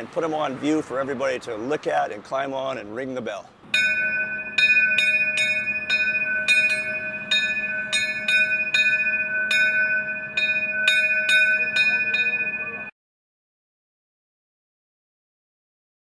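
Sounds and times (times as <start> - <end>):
locomotive bell ringing: 3.7 - 12.9.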